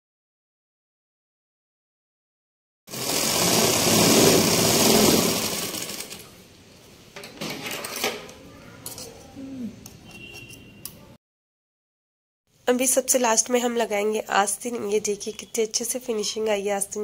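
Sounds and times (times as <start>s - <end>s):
sewing machine running fast: 2.9s - 6.3s.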